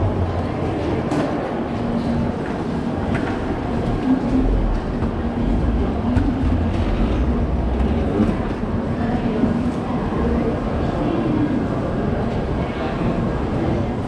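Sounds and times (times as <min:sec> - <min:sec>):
low rumble and hum: 0:01.7 - 0:09.8.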